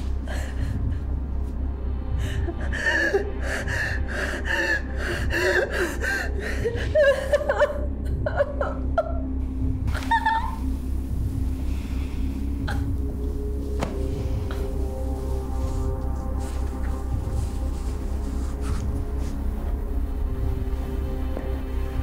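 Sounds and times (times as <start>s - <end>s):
steady low hum: 0.0s - 22.0s
woman gasping and sobbing: 0.1s - 1.3s, 1.9s - 9.3s, 12.6s - 13.2s.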